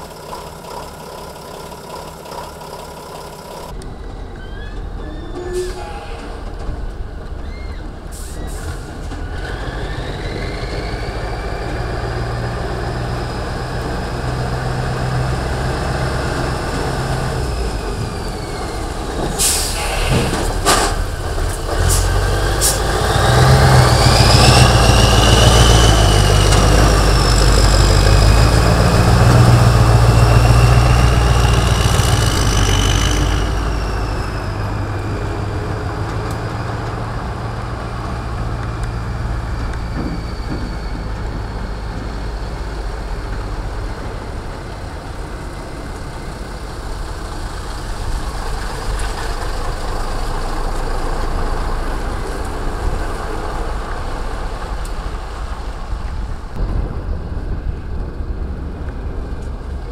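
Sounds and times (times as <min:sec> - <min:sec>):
diesel truck engine: 0:00.0 - 0:59.9
high engine whistle: 0:03.9 - 0:06.5
air brake hisses: 0:19.3 - 0:20.9.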